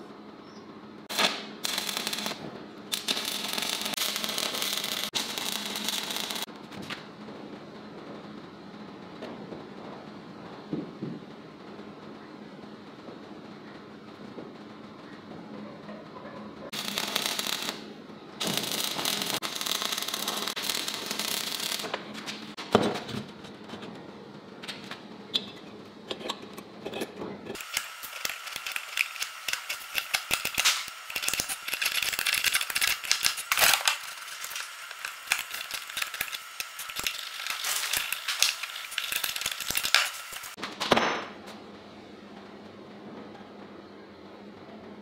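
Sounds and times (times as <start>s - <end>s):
steel plate sanding: 27.5s - 40.6s.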